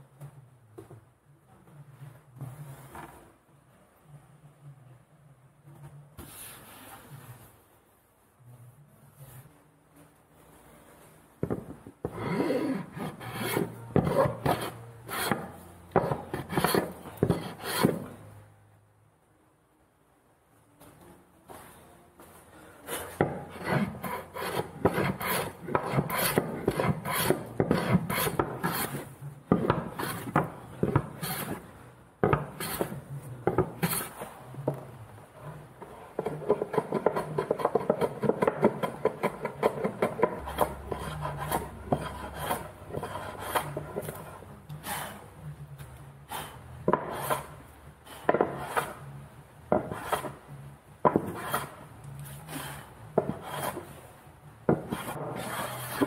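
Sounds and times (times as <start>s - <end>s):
hand plane shaving wood: 12.1s - 18.0s, 23.2s - 31.6s, 48.3s - 49.0s, 51.3s - 51.8s, 52.5s - 53.9s, 54.9s - 56.0s.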